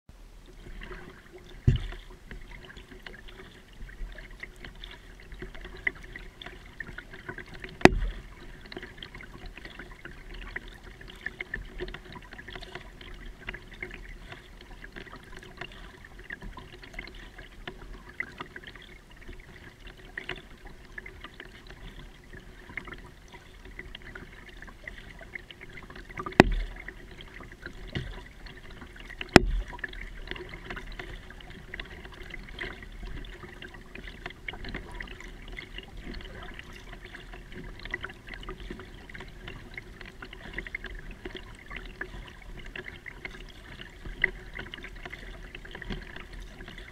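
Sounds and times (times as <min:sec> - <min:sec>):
water dripping off paddle: 0:00.5 - 0:46.9
sharp knocks on kayak: 0:01.6 - 0:02.0, 0:07.8 - 0:08.2, 0:26.3 - 0:26.7, 0:29.2 - 0:29.8.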